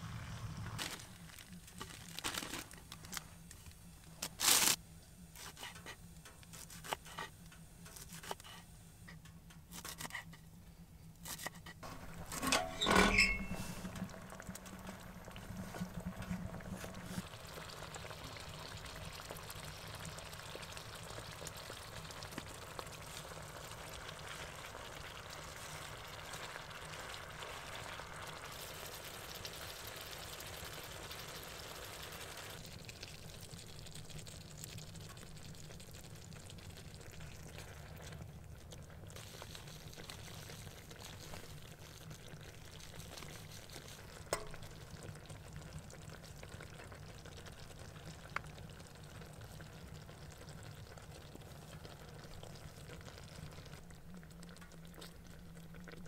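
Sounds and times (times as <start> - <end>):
tomatoes sizzling in a frying pan: 11.8 - 56.0.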